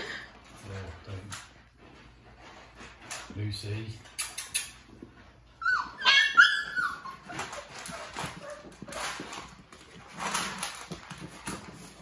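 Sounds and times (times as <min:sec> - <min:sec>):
rustling and scuffling: 0:00.2 - 0:04.0, 0:04.8 - 0:12.0
puppy whining and yelping: 0:05.4 - 0:09.6.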